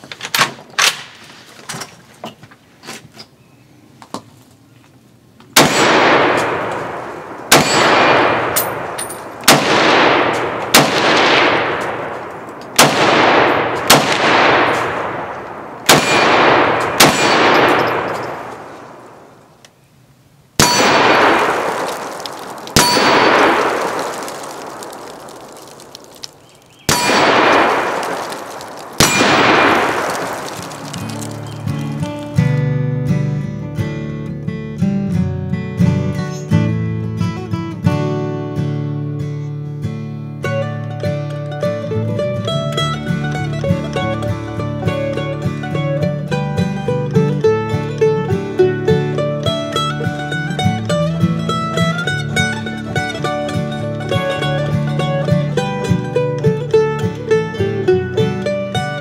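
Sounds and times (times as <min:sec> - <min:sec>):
steel target ringing clang: 0:05.6 - 0:19.2, 0:20.6 - 0:24.8, 0:26.8 - 0:30.4
rifle shots: 0:05.6 - 0:19.5, 0:20.6 - 0:32.2.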